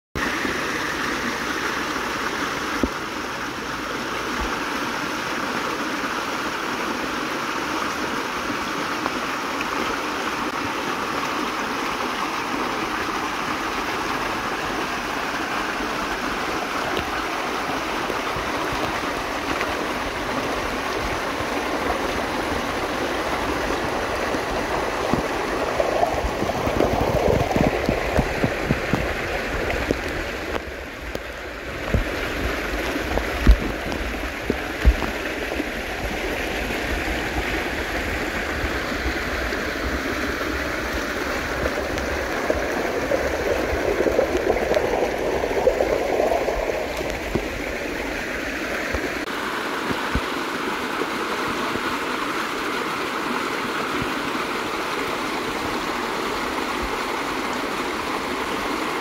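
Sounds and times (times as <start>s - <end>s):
underwater rushing water: 0.2s - 59.0s
knocks and crackles: 25.0s - 35.4s.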